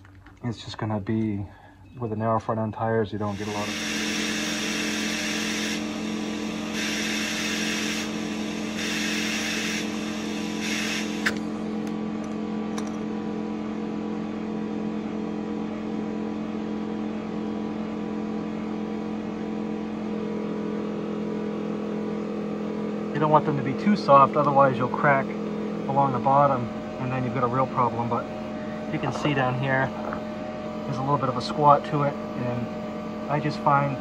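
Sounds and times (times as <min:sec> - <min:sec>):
steady machine hum: 0:00.0 - 0:34.0
compressed air hissing into tyre: 0:03.4 - 0:11.5.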